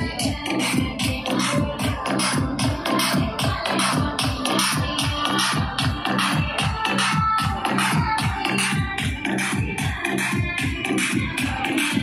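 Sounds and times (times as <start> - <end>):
electronic music with bass-drum beat: 0.0 - 12.0.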